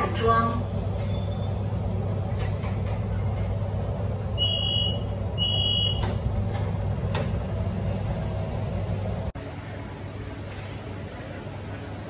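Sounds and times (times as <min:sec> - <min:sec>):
train low hum: 0:00.0 - 0:12.0
door warning beeps: 0:04.4 - 0:06.2.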